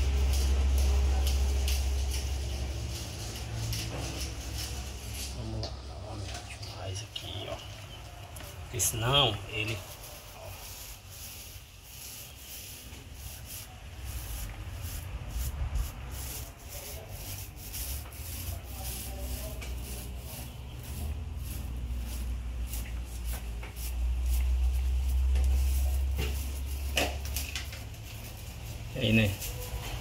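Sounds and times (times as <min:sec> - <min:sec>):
paintbrush scratchy rubbing: 0:00.0 - 0:07.7, 0:08.4 - 0:30.0.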